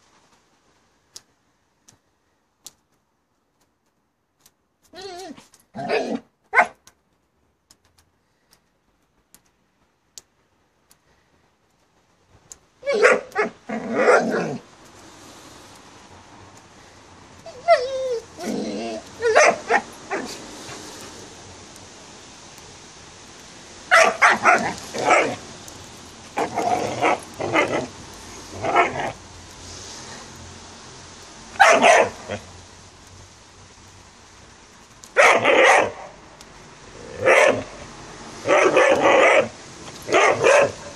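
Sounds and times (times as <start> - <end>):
steady hiss: 0.0 - 40.9
faint clicks: 1.1 - 5.7, 6.8 - 13.4
dog barking: 12.9 - 14.5, 19.2 - 20.4, 23.9 - 25.4, 31.6 - 32.3, 35.2 - 36.1, 37.2 - 37.7, 38.5 - 39.5, 40.1 - 40.9.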